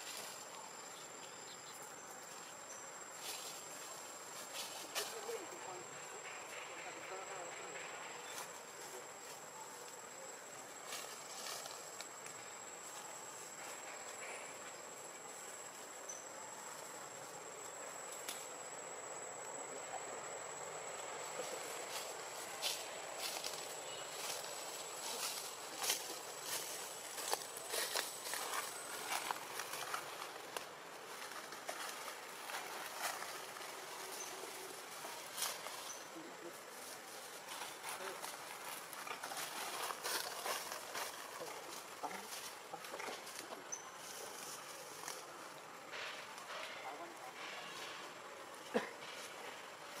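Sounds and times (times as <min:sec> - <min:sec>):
faint outdoor ambience: 0:00.0 - 0:50.0
steady forest hiss: 0:00.0 - 0:50.0.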